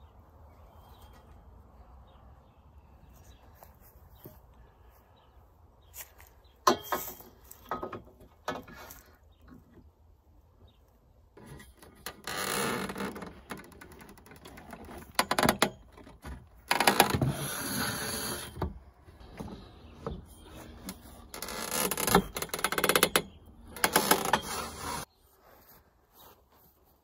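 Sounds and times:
metal scraping and creaking: 11.4s - 25.1s.

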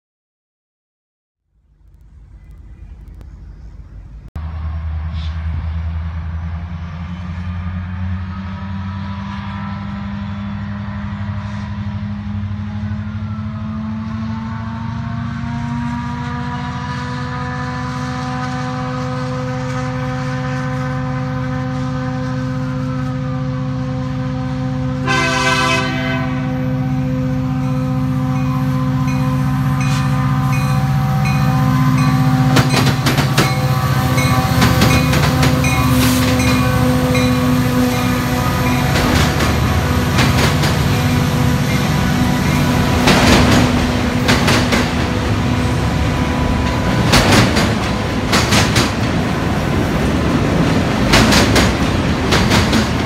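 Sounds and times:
diesel locomotive engine drone: 1.4s - 53.0s
locomotive air horn: 8.2s - 47.0s.

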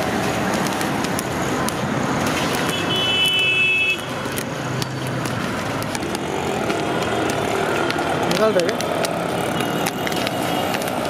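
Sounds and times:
road traffic noise: 0.0s - 11.0s
sharp clicks: 0.5s - 11.0s
vehicle horn: 2.7s - 4.1s.

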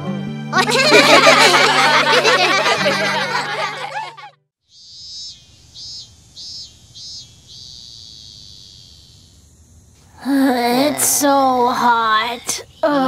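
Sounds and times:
cartoon music: 0.5s - 4.3s
cicada buzz: 4.6s - 13.0s.

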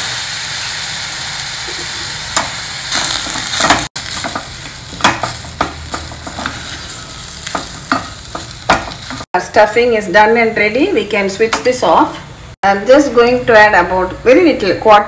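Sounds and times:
potatoes sizzling in hot pan: 0.0s - 9.3s.

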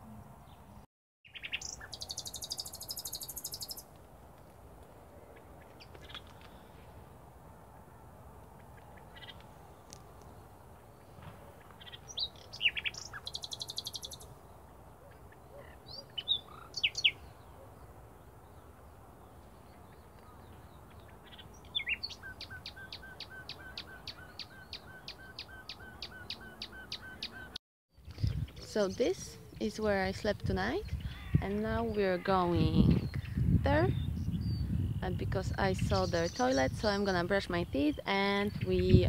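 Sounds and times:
songbirds chirping: 0.0s - 39.0s
buzzy bird trill: 1.3s - 3.9s, 11.8s - 14.3s.

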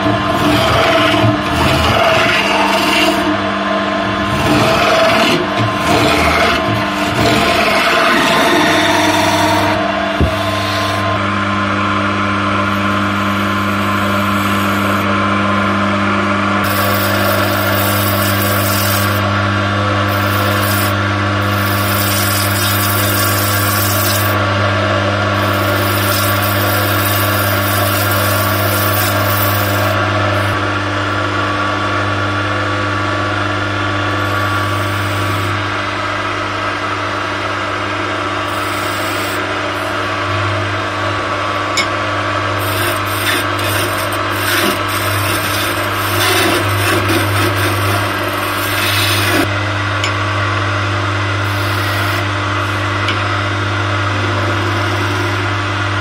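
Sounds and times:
chisel scraping spinning wood: 0.0s - 3.4s, 4.1s - 11.2s, 16.6s - 30.6s, 38.5s - 40.2s, 42.6s - 49.5s
wood lathe motor humming: 0.0s - 31.4s, 33.3s - 56.0s.

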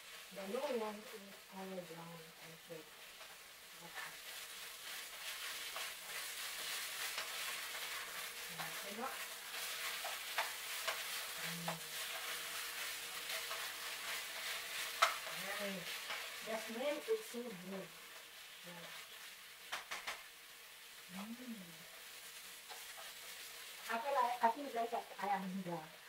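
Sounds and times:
meat and garlic sizzling in a wok: 0.0s - 26.0s
wooden spatula stirring and tapping: 4.2s - 17.1s.

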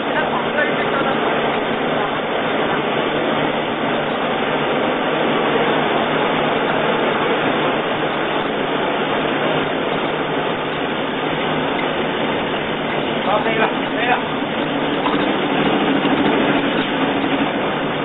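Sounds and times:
grinding mill running: 0.0s - 18.0s.

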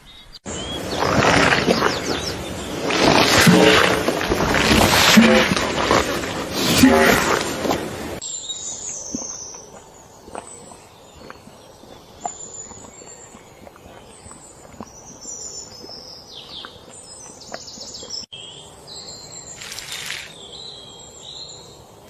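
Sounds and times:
birds chirping and calling: 0.0s - 3.0s.

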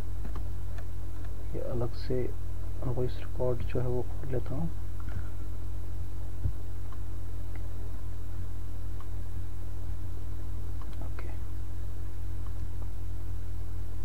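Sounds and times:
low electrical hum: 0.0s - 14.0s
computer mouse clicks: 10.8s - 11.1s.

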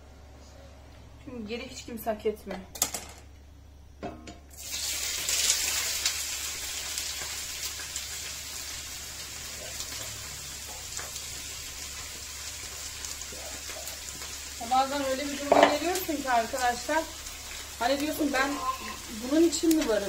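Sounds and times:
food sizzling in hot oil: 4.5s - 20.0s
small crackles of frying: 4.5s - 20.0s.

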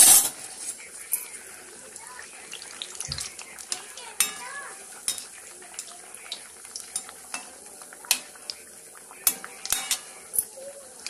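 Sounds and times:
ladle clinking and scraping pan: 0.0s - 1.3s, 3.7s - 5.9s, 6.7s - 8.4s, 9.2s - 10.6s
dough sizzling in hot oil: 0.0s - 11.0s.

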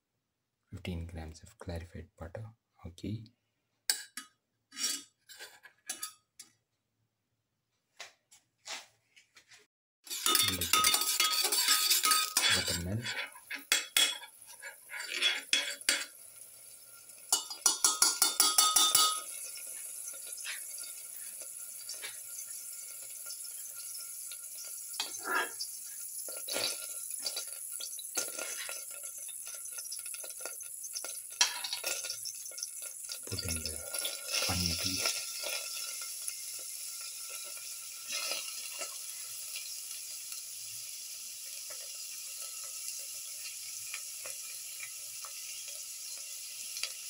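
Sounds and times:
metal ladle scraping a steel pan: 4.7s - 6.2s, 10.1s - 16.1s, 25.0s - 25.7s
ghee sizzling in a pan: 10.0s - 47.0s
light metal clinks: 10.2s - 12.8s.

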